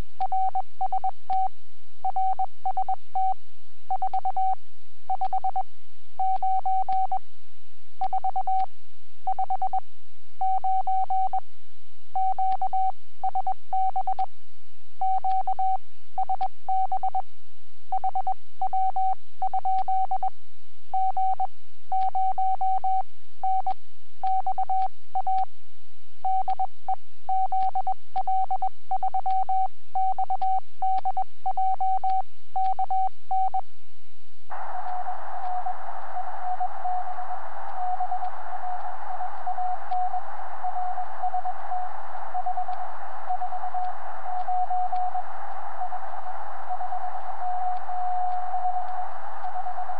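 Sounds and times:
morse code tone: 34.5s - 49.9s
radio band noise hiss: 34.5s - 49.9s.

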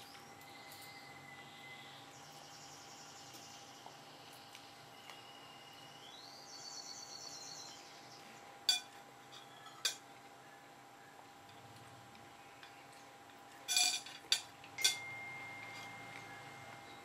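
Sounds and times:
cutlery clinking on ceramic plate: 8.7s - 10.0s, 13.7s - 15.1s
faint high rising trill: 14.8s - 17.0s.

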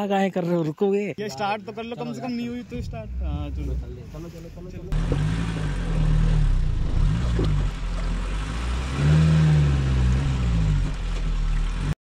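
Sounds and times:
vehicle engine accelerating: 2.6s - 12.0s.

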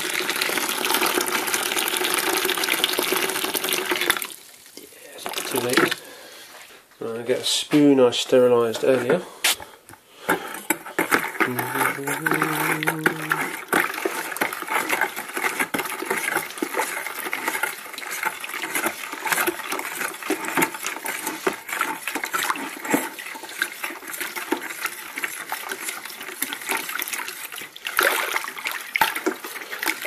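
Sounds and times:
spoon scraping plastic bucket: 5.2s - 30.0s
water swishing: 11.5s - 30.0s.

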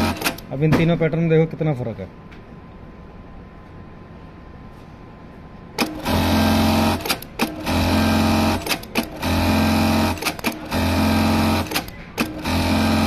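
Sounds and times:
sewing machine stitching clatter: 0.0s - 0.4s, 5.8s - 13.0s.

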